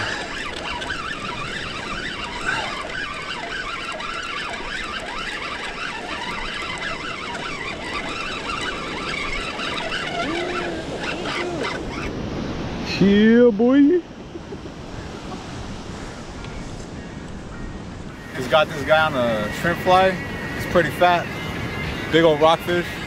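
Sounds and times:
fishing reel being cranked: 0.0s - 11.9s.

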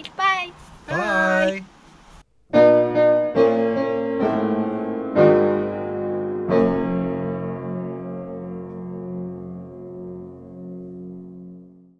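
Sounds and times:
slow piano chords: 2.5s - 11.9s.

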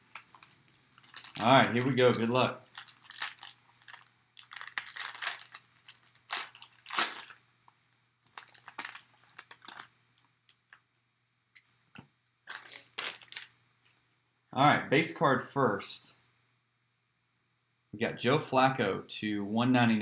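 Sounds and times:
foil wrapper crinkling and tearing: 0.0s - 9.9s, 12.5s - 13.5s.

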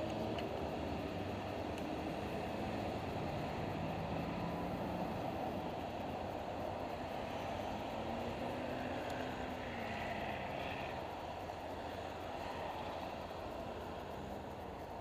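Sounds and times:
city traffic rumble: 0.0s - 15.0s.

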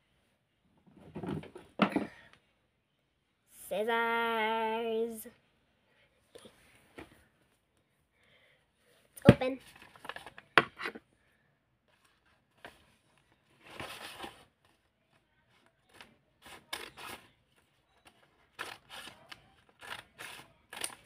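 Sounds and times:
paper rustling: 12.0s - 14.8s
scissors cutting paper: 15.9s - 17.3s, 18.5s - 21.0s.

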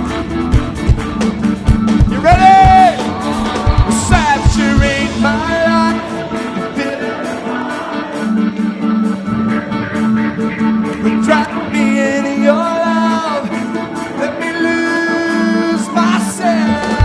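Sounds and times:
crowd noise: 0.0s - 17.0s
rock band playing: 0.0s - 17.0s
man singing: 2.0s - 8.8s, 11.0s - 17.0s.

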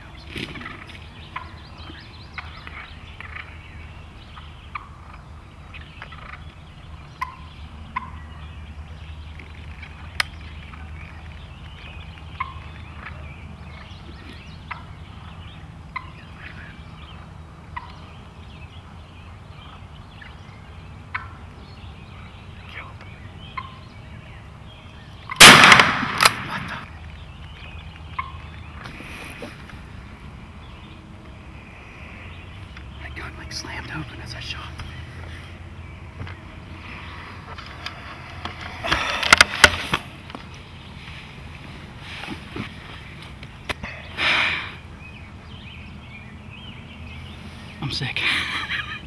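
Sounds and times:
turkeys calling: 0.0s - 49.0s
shotgun blast: 25.4s - 26.8s.

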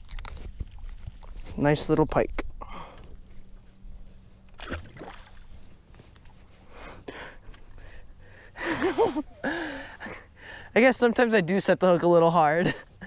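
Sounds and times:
water sloshing: 4.5s - 6.7s
fish splashing into water: 4.6s - 5.7s.

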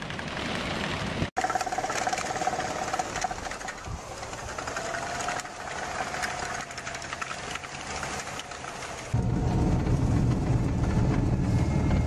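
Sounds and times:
snowcat track clatter: 0.0s - 12.0s
snowcat engine whine: 4.2s - 12.0s.

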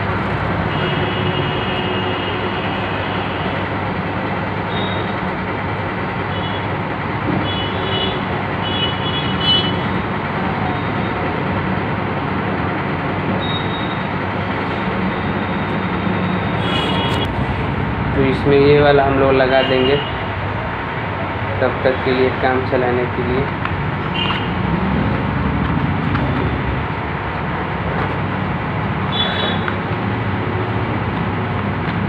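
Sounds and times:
steady rushing noise: 16.4s - 19.5s.

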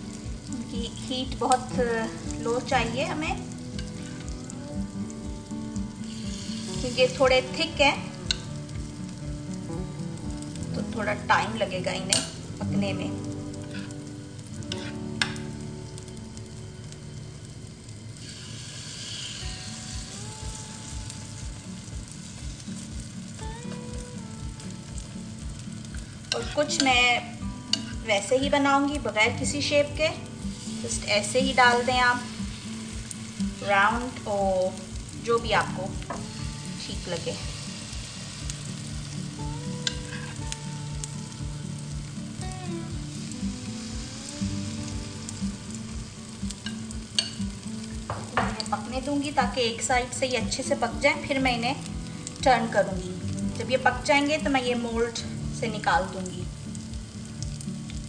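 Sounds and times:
batter sizzling in a frying pan: 0.0s - 58.0s
metal spoon clicking on pan: 12.1s - 12.4s, 46.7s - 47.4s.

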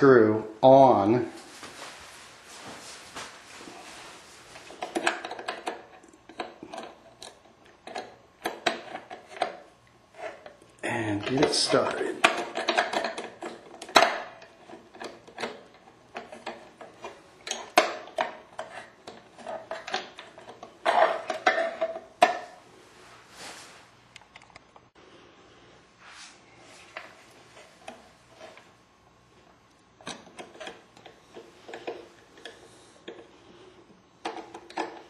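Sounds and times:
small parts clicking and rattling: 11.1s - 22.4s.

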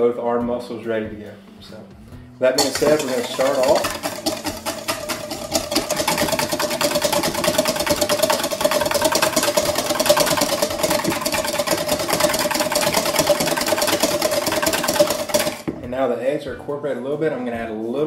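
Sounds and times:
whisk clattering in metal bowl: 2.6s - 15.8s.

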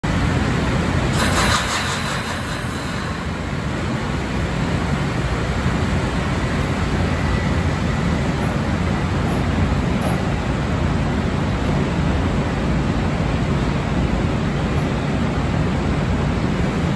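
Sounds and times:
electric train rumble: 0.0s - 16.9s
burst of hiss: 1.1s - 3.4s.

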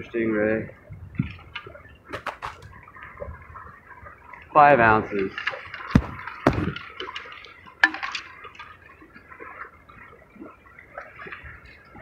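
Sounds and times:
sharp clicks and knocks: 1.6s - 2.7s
dull thump: 5.9s - 6.8s.

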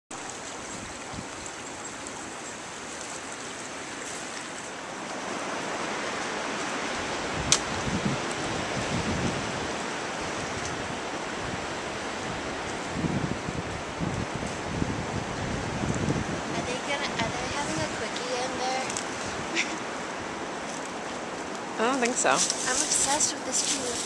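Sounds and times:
creek rushing: 0.1s - 24.0s.

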